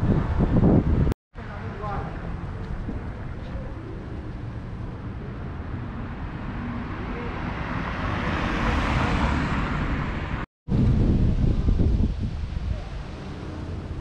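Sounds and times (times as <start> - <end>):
wind rumble on microphone: 0.0 - 7.4, 8.9 - 14.0
motor vehicle passing: 2.2 - 10.5.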